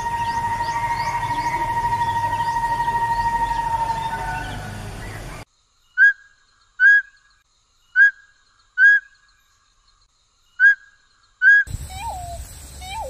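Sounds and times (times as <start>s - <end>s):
owl whistled calls: 0.0s - 5.4s, 6.0s - 7.2s, 10.6s - 13.0s.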